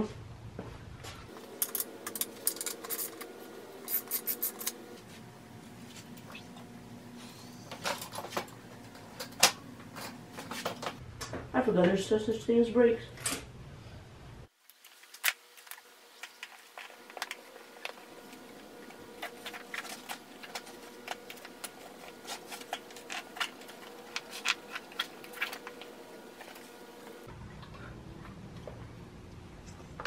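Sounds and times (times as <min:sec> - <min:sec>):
faint steady hum: 0:00.0 - 0:30.0
hands and tools on bicycle tire: 0:14.6 - 0:27.3.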